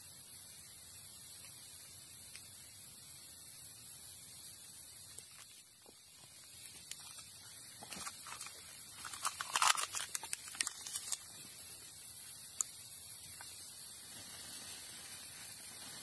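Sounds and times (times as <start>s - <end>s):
steady high hiss: 0.0s - 16.0s
fire crackling: 5.0s - 16.0s
plastic bag crinkling: 7.9s - 11.3s.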